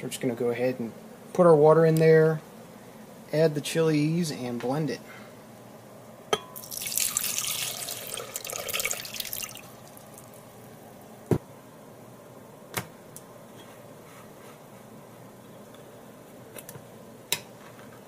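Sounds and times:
water pouring into glass jar: 6.6s - 10.4s.

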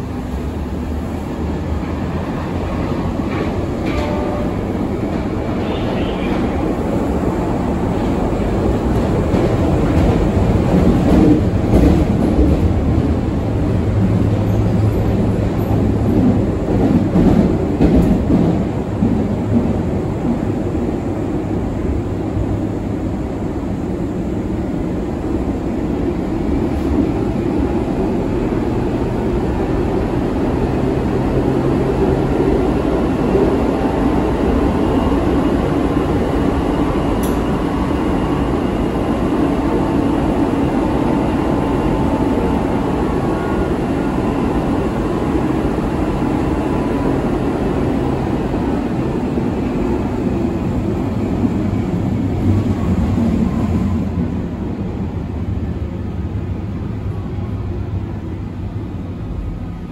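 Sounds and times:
wheels rumbling on rails: 0.0s - 59.9s.

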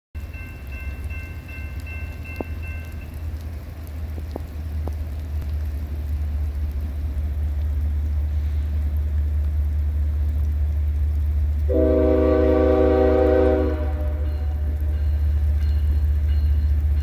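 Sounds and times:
crossing bell ringing: 0.2s - 3.4s, 13.7s - 17.0s
diesel locomotive rumble: 0.2s - 17.0s
rain: 0.2s - 17.0s.

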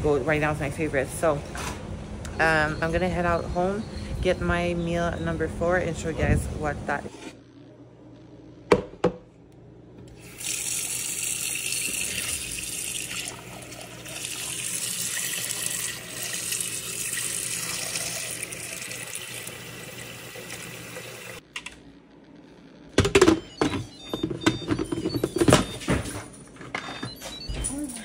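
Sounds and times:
tap water running into metal bowl: 10.2s - 21.4s.

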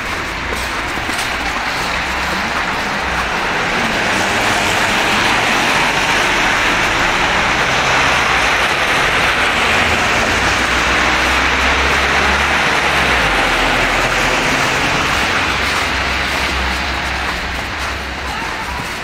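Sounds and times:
tyres hissing on wet road: 0.0s - 19.0s.

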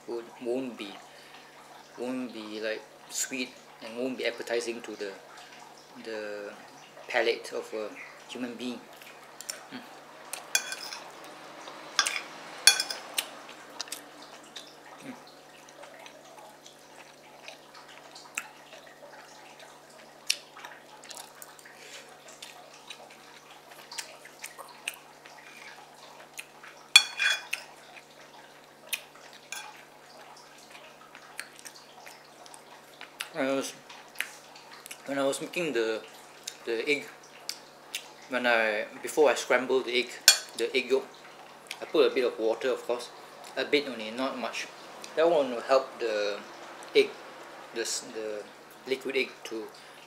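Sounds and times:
spoon clinking: 10.6s - 11.0s, 12.0s - 13.0s, 27.0s - 27.5s, 40.3s - 40.6s
chewing and wet mouth clicks: 13.2s - 14.7s, 31.1s - 33.4s, 34.2s - 35.1s.

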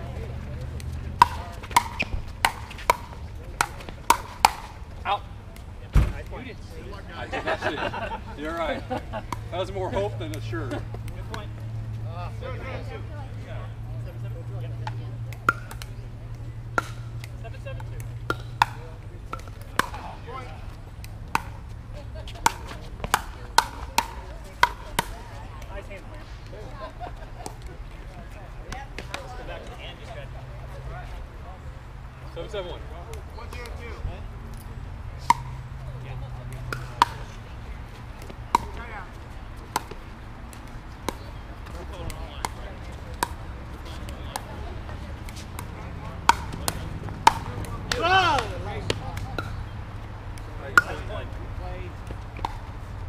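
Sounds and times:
paddles hitting plastic ball: 0.7s - 4.8s, 14.8s - 25.8s, 35.2s - 35.7s, 36.4s - 37.4s, 38.0s - 53.0s.

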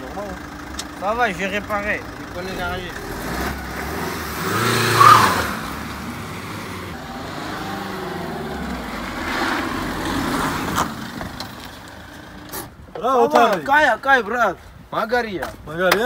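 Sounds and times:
car engine revving: 1.6s - 11.7s.

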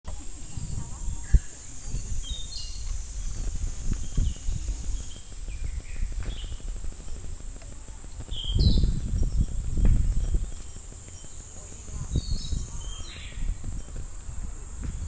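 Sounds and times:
cicadas singing: 0.0s - 15.0s
bird chirps: 0.4s - 6.6s, 8.3s - 14.0s.

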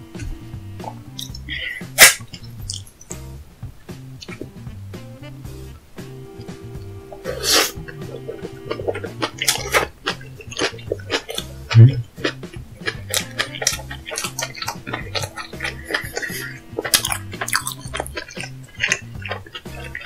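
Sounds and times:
mouth clicks: 0.0s - 3.2s, 3.9s - 5.4s, 6.4s - 20.0s
heavy low thump: 0.0s - 10.1s
background music with bass line: 0.0s - 20.0s
short hiss: 0.1s - 3.2s, 7.2s - 7.9s
wet chewing and slurping: 0.2s - 2.9s, 7.2s - 20.0s.

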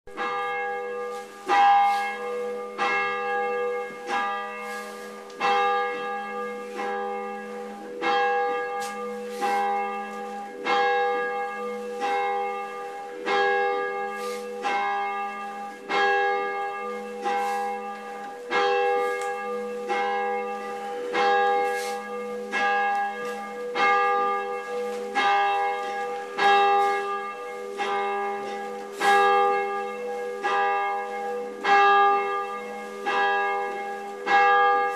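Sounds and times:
church bell tolling: 0.1s - 34.9s.

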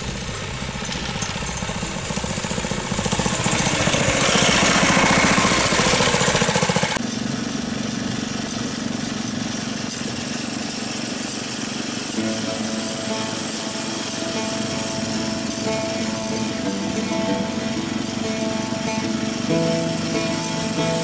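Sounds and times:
engine heard on board: 0.0s - 21.0s
small engine passing by: 0.0s - 21.0s.

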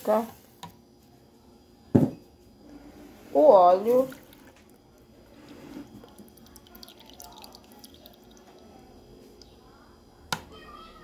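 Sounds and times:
oil trickling into a jar: 4.0s - 9.4s.

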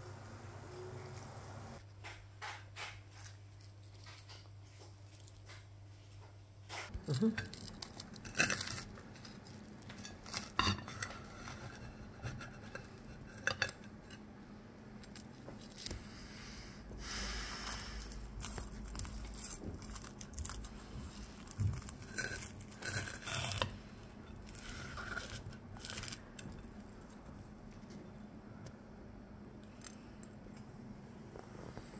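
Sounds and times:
knife crunching through crust: 7.0s - 11.4s, 18.4s - 23.8s.

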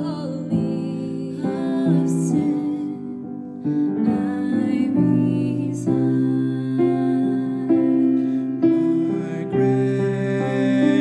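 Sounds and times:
piano playing slow hymn: 0.0s - 11.0s
choir holding wordless harmonies: 4.0s - 11.0s.

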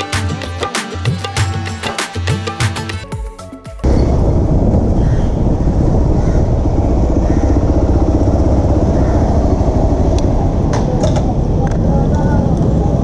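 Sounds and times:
motorcycle engine running: 3.8s - 13.0s.

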